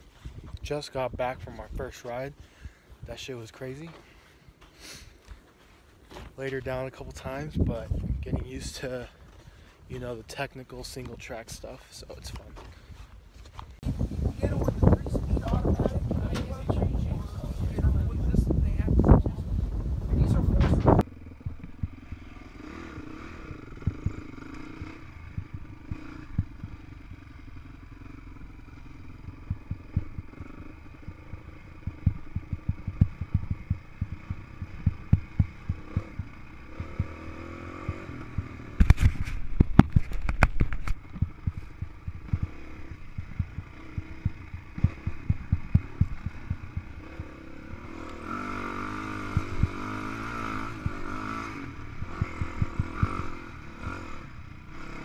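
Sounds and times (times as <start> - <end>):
dirt bike engine running: 13.6 - 55.0.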